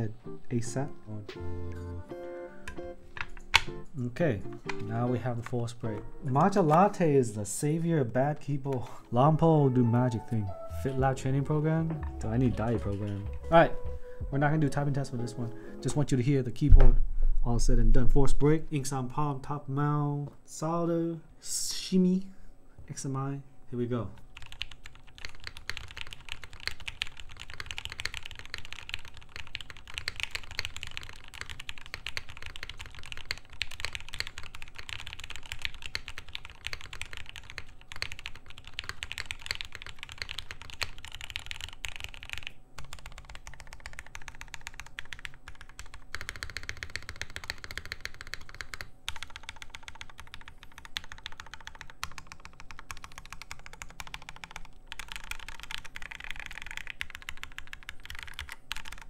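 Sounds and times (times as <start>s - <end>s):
fast typing on mechanical keyboard: 24.2s - 59.0s.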